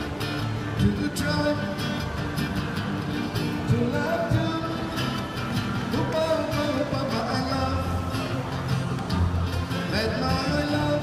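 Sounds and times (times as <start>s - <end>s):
acoustic guitar strumming: 0.0s - 11.0s
man singing: 0.8s - 2.0s, 3.6s - 8.5s, 9.7s - 11.0s.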